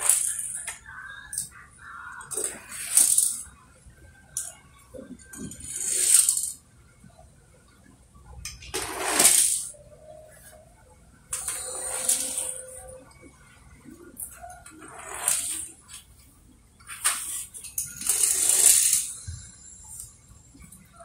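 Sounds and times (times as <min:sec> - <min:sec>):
toy cars rolling: 0:00.0 - 0:03.6, 0:04.4 - 0:06.6, 0:08.4 - 0:09.8, 0:11.3 - 0:13.0, 0:14.2 - 0:16.1, 0:16.9 - 0:20.2.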